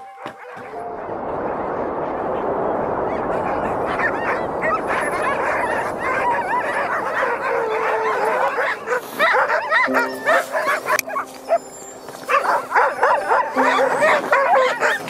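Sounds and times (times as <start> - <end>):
steady rushing noise: 0.6 - 11.4
dog howl: 4.9 - 15.0
huskies yelping and whining: 6.2 - 15.0.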